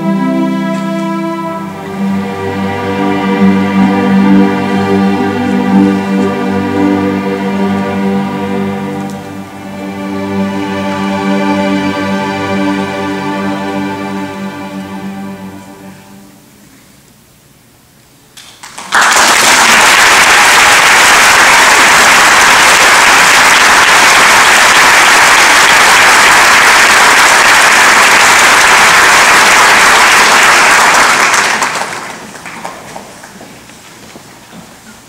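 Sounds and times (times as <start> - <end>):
audience applauding: 18.4 - 33.6.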